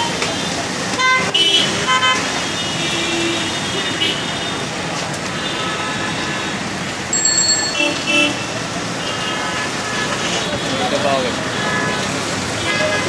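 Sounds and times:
heavy rain on a wet street: 0:00.0 - 0:13.0
traffic on a wet road: 0:00.0 - 0:13.0.

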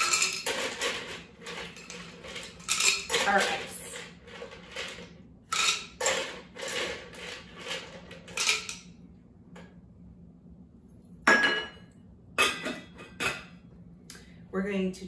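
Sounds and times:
ice cubes clattering: 0:00.0 - 0:08.8.

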